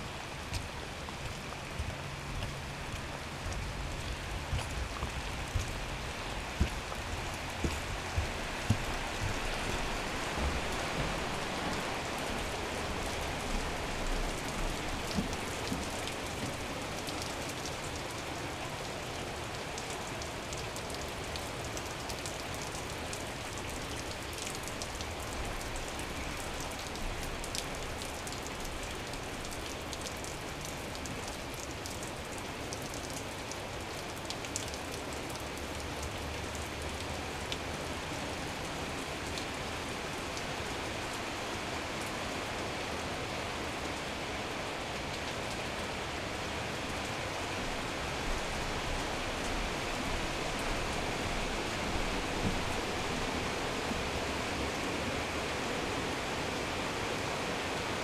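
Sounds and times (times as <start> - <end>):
steady rain hiss: 0.0 - 58.0
raindrop ticks: 0.4 - 11.2, 12.2 - 37.8.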